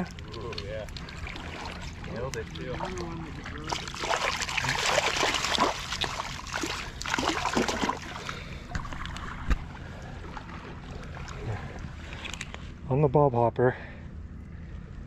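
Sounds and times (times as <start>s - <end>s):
fish splashing in net: 3.6s - 8.5s.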